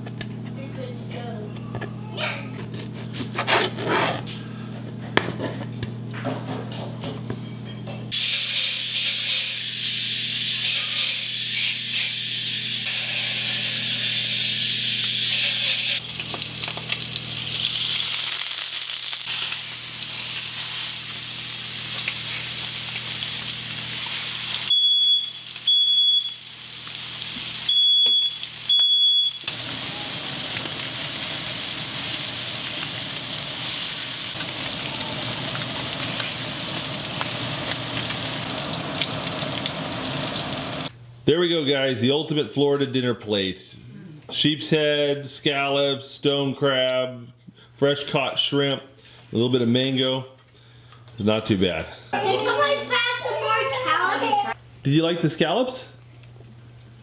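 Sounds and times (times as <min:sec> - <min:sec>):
fish sizzling in a skillet: 0:09.6 - 0:40.9.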